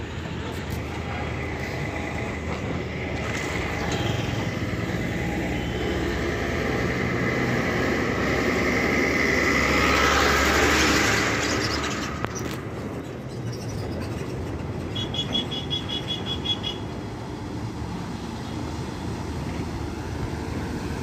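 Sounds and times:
diesel truck driving past: 0:01.0 - 0:13.3.

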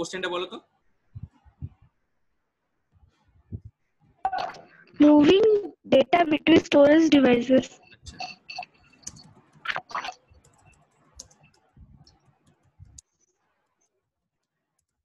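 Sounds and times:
laptop keyboard typing: 0:06.1 - 0:13.2.

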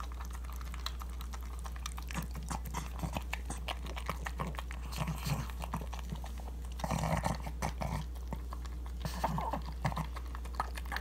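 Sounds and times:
dog chewing and smacking: 0:00.0 - 0:11.0
dog grunting: 0:06.8 - 0:08.4.

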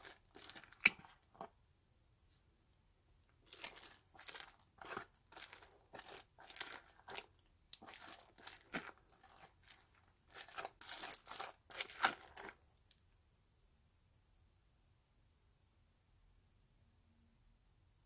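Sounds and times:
crunchy slime squishes: 0:00.0 - 0:01.5, 0:03.4 - 0:12.6.

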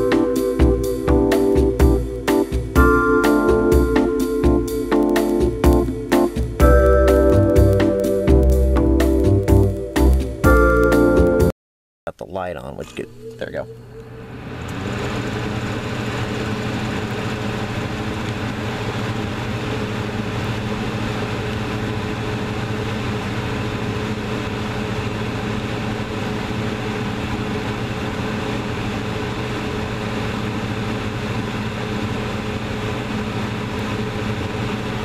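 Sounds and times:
exhaust fan motor hum: 0:12.6 - 0:35.0
air rushing through fan: 0:14.2 - 0:35.0.

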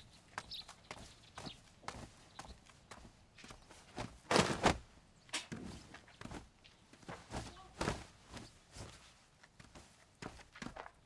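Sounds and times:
footsteps on pavement: 0:00.0 - 0:04.2.

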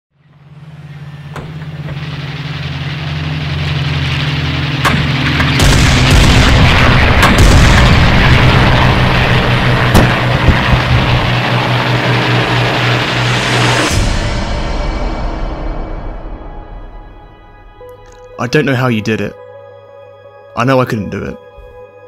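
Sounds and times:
low drone notes: 0:00.1 - 0:22.0
rushing orchestral swell: 0:00.4 - 0:20.9
sharp booming hits: 0:01.2 - 0:18.1.

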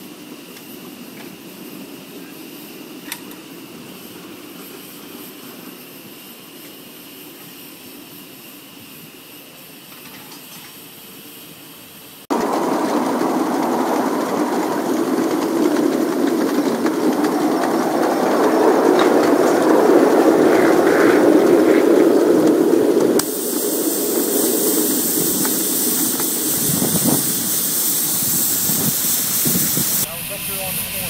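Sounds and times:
model steam locomotive running: 0:00.0 - 0:31.0
rush of steam: 0:00.0 - 0:31.0
wheels on rails: 0:12.3 - 0:31.0.

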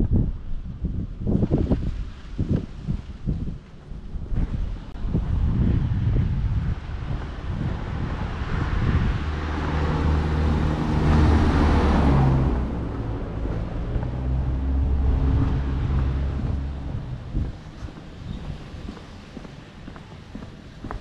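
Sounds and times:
van passing by: 0:04.6 - 0:21.0.

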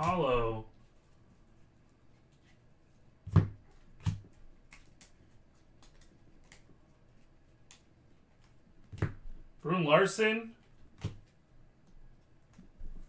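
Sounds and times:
sharp taps of cards: 0:10.9 - 0:11.3.

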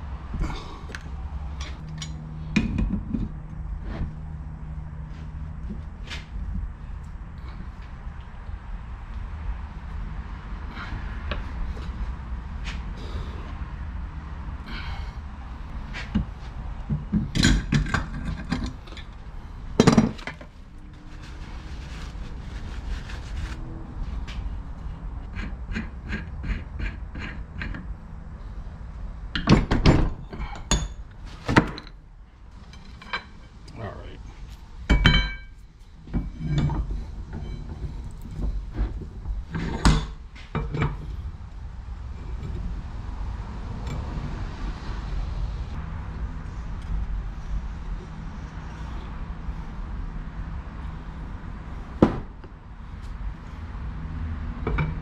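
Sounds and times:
low steady hum: 0:00.0 - 0:53.8
metal tools knocking and clanking: 0:01.6 - 0:03.4, 0:34.9 - 0:38.6.

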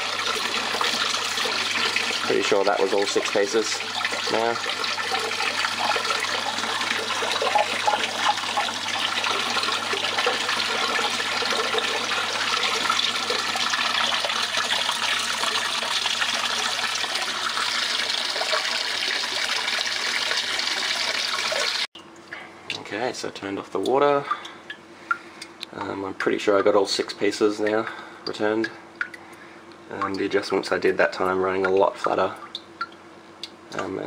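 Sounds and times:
water running over a table: 0:00.0 - 0:21.9.

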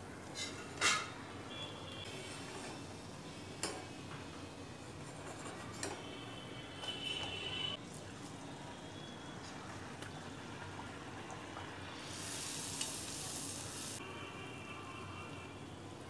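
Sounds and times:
food sizzling in hot oil: 0:11.8 - 0:14.0.

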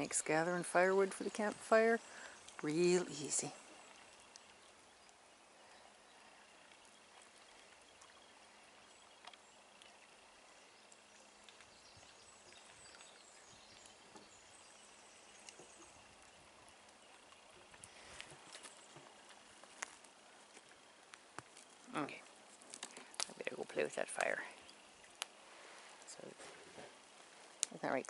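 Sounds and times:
soft outdoor hiss: 0:00.0 - 0:28.0.

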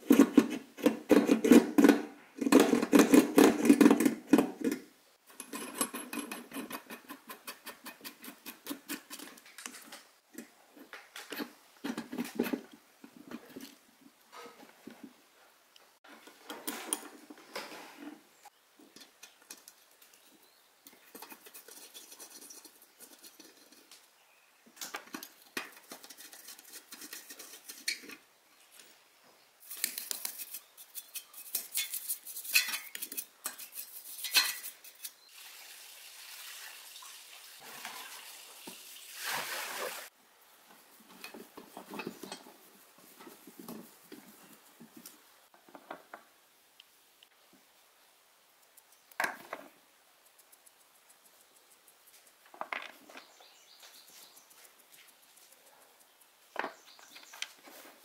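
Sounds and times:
rustling scraping noise: 0:16.0 - 0:20.0, 0:29.6 - 0:35.2, 0:56.7 - 0:58.0
metal parts clinking and tapping: 0:29.7 - 0:35.2.

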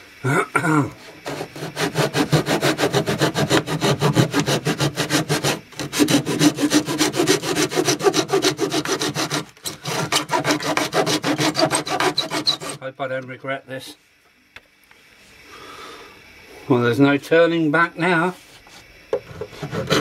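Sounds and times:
hand saw cutting: 0:01.0 - 0:12.8, 0:19.2 - 0:20.0.

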